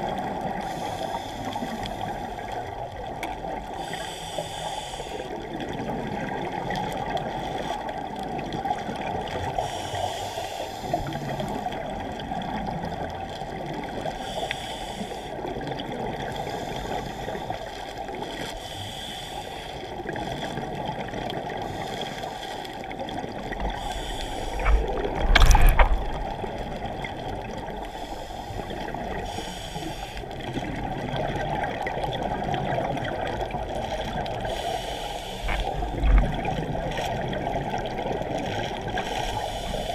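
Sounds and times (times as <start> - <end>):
underwater water rush and gurgle: 0.0 - 39.9
scuba regulator breathing: 0.5 - 2.6, 3.7 - 5.4, 9.5 - 11.8, 14.2 - 15.4, 16.2 - 20.8, 21.5 - 26.8, 27.4 - 30.5, 34.3 - 36.2, 38.9 - 39.9
exhaled bubbles: 22.8 - 34.8, 35.4 - 39.9.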